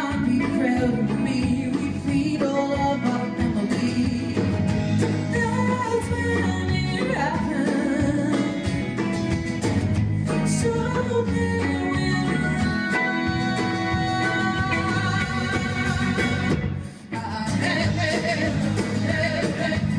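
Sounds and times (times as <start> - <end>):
person singing: 0.0 - 8.9, 10.3 - 19.9
bass: 0.0 - 19.9
drum kit: 0.0 - 19.9
guitars: 0.0 - 19.9.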